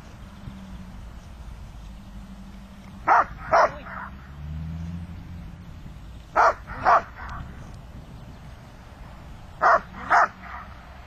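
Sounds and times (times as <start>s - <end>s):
dog barking: 3.1s - 4.1s, 6.4s - 7.3s, 9.6s - 10.8s.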